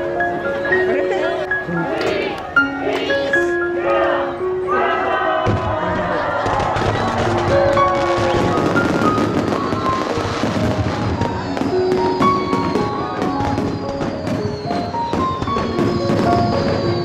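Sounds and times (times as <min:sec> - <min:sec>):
music with held notes: 0:00.0 - 0:17.0
fireworks bangs: 0:05.4 - 0:17.0.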